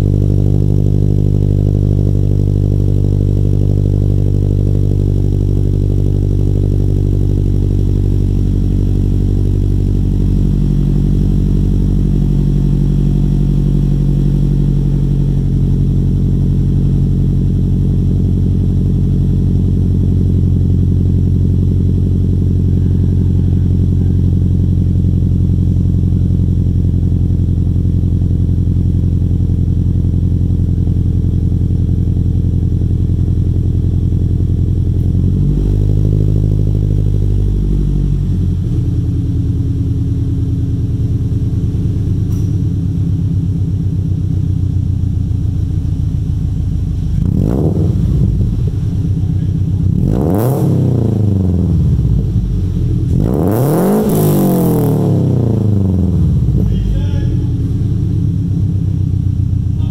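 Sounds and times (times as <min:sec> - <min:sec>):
car engine idling: 0:00.0 - 0:59.9
engine revving: 0:35.0 - 0:39.0, 0:47.1 - 0:58.8.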